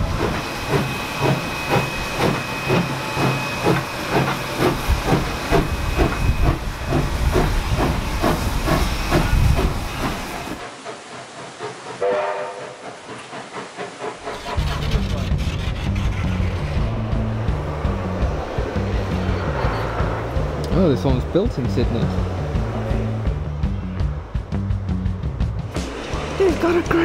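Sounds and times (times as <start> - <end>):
steam hissing: 0.0 - 21.5
steam locomotive exhaust chuffs: 0.0 - 27.0.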